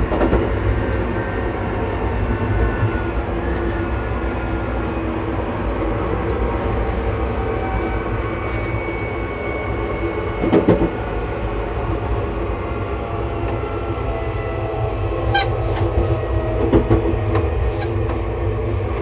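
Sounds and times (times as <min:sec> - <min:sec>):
train clunks: 0:00.0 - 0:01.1, 0:10.4 - 0:11.0, 0:15.3 - 0:18.3
train running gear rumble: 0:00.0 - 0:19.0.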